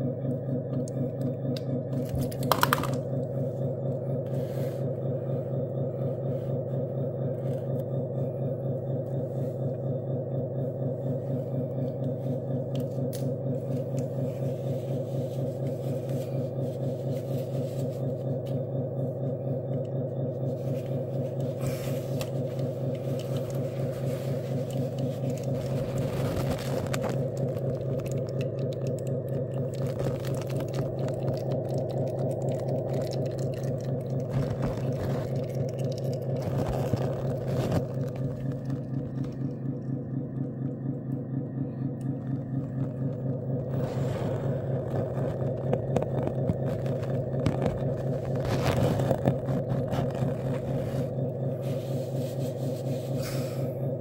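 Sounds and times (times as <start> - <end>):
electric hydraulic pump humming: 0.0 - 54.0.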